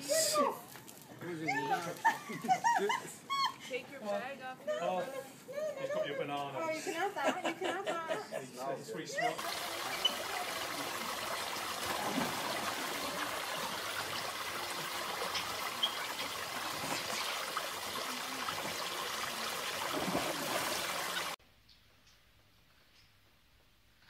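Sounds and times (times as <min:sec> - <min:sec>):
running water rushing: 0:09.4 - 0:21.4
splash into water: 0:09.4 - 0:21.4.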